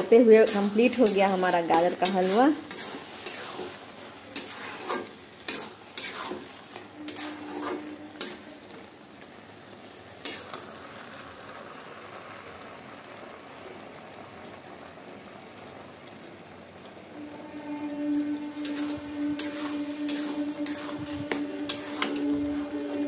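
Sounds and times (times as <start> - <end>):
food sizzling in a pan: 0.0 - 23.0
spoon scraping a pan: 0.2 - 8.9, 10.2 - 10.6, 17.3 - 23.0.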